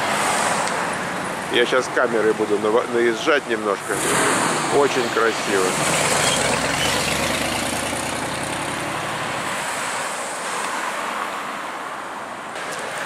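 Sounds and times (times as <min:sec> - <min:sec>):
vehicle driving past: 0:05.6 - 0:09.1.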